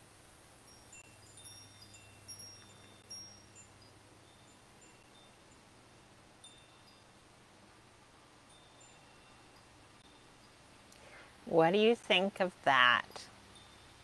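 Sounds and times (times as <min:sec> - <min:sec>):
faint wind chimes tinkling: 0:00.6 - 0:11.9, 0:12.8 - 0:14.0.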